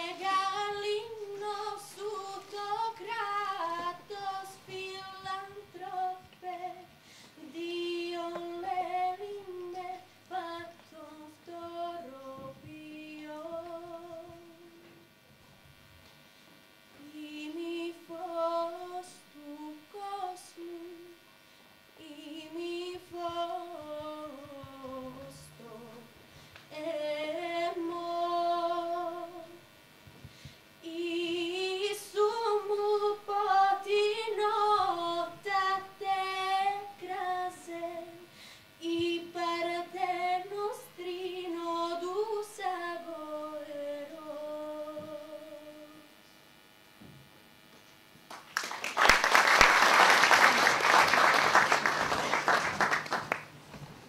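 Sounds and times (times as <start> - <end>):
girl singing with vibrato: 0.0 - 15.0, 17.0 - 21.3, 22.0 - 29.7, 30.8 - 46.2
singer breathing: 6.9 - 7.4, 26.2 - 26.7, 30.2 - 30.8, 38.3 - 38.8.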